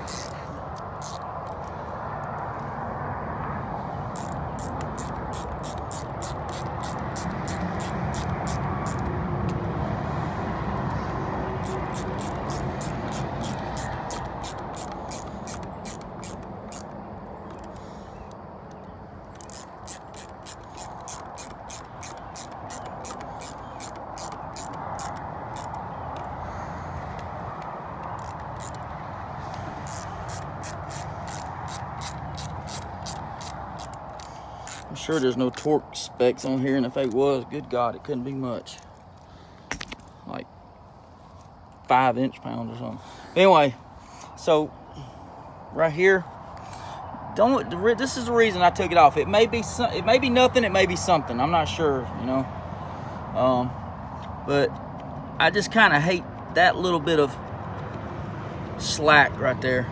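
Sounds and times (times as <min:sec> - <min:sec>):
ratcheting screwdriver clicking: 0:00.0 - 0:02.6, 0:04.2 - 0:09.6, 0:11.6 - 0:26.3, 0:27.1 - 0:28.9, 0:29.5 - 0:35.8, 0:37.0 - 0:37.2.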